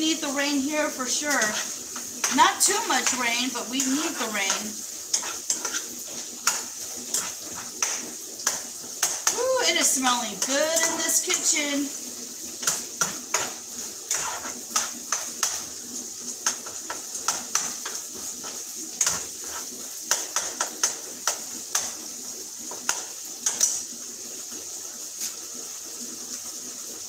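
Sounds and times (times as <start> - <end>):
meat sizzling: 0.0 - 27.0
metal utensil scraping a pan: 0.8 - 11.7, 12.6 - 15.7, 16.4 - 22.0.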